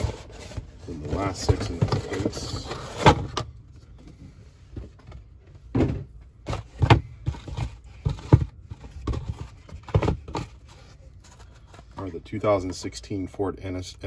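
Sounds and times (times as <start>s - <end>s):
cardboard rustling: 0.0s - 3.4s, 6.4s - 12.9s
cardboard boxes thunking down: 5.7s - 10.6s.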